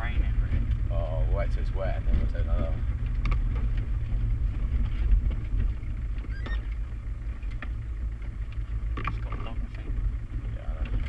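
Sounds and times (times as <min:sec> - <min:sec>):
diesel engine running: 0:00.0 - 0:11.0
high squeak: 0:06.2 - 0:06.7.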